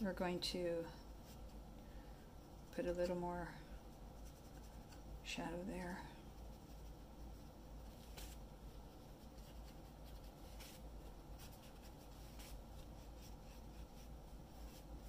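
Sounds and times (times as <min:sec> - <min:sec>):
low steady hum: 0:00.0 - 0:15.0
water brush scratching paper: 0:03.9 - 0:05.1, 0:06.2 - 0:15.0.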